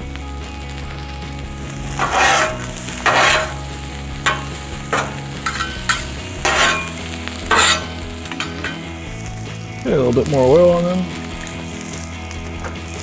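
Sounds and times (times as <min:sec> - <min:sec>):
onions and patties sizzling: 0:00.0 - 0:13.0
metal spatulas scraping a griddle: 0:01.8 - 0:09.0.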